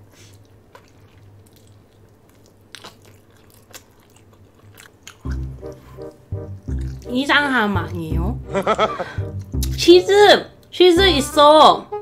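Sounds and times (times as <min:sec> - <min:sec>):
close chewing: 0:00.1 - 0:08.1.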